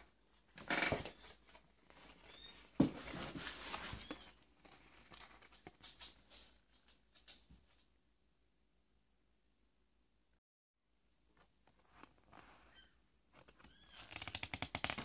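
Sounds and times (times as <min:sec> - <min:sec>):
paper rustling and crinkling: 0:00.5 - 0:07.5.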